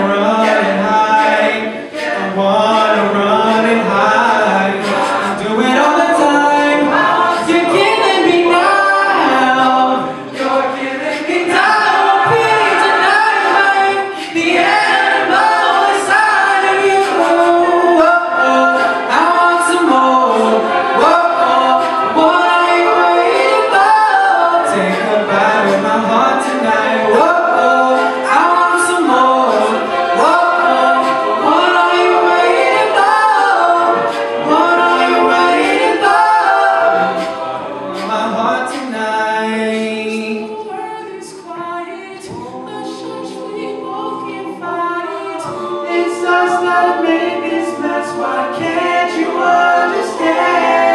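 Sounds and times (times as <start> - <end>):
male a cappella group singing: 0.0 - 50.9.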